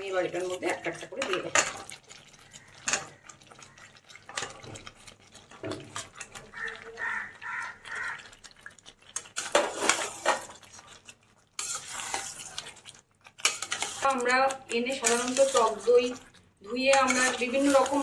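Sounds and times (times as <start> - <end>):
pan clattering while stirred: 0.0 - 18.0
chicken plopping into masala: 1.3 - 11.1.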